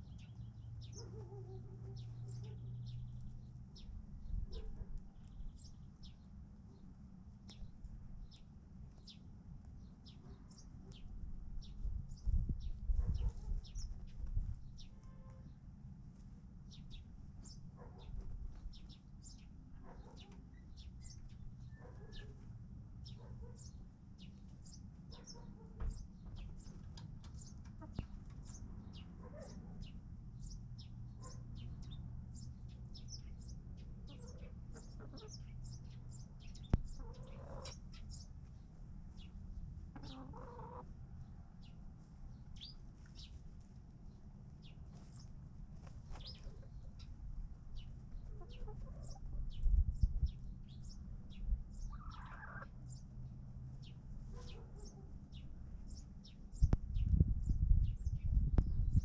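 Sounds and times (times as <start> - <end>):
chickens clucking: 25.8 - 28.6, 34.1 - 35.5, 36.9 - 38.0, 39.9 - 40.9, 48.2 - 49.5, 51.9 - 52.7.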